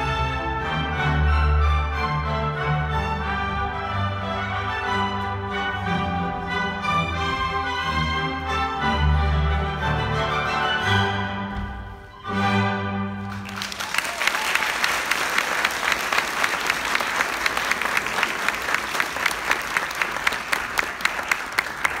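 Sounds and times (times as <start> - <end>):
orchestral strings: 0.0 - 22.0
audience applauding: 13.2 - 22.0.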